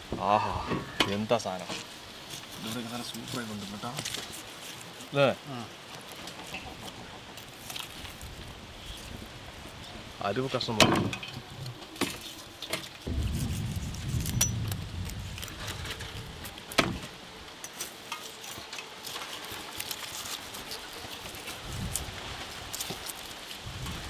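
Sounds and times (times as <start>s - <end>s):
knife scraping charred crust: 1.1s - 5.2s, 5.9s - 9.2s, 9.8s - 24.0s
low rumble: 13.1s - 16.7s.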